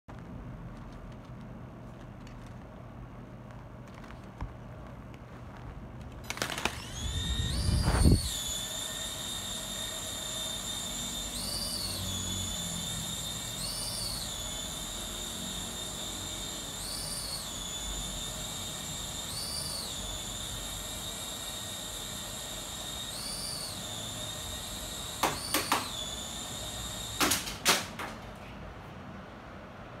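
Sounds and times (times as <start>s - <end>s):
toy propeller motor whining: 6.2s - 27.5s.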